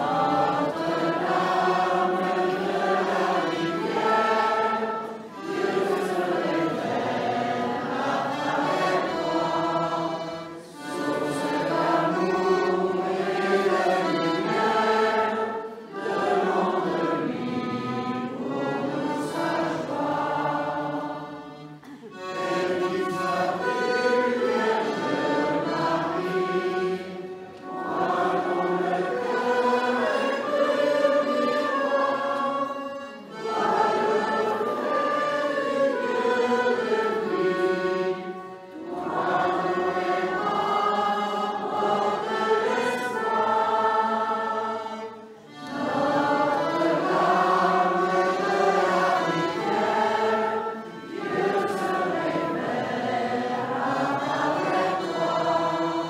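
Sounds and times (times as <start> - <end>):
congregation singing a hymn: 0.0 - 56.0.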